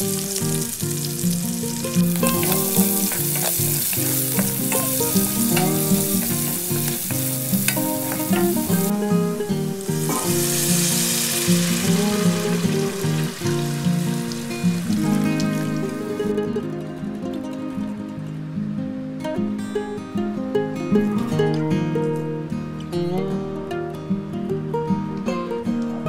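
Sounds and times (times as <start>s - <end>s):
onions sizzling in hot oil: 0.0s - 16.0s
background music: 0.0s - 26.0s.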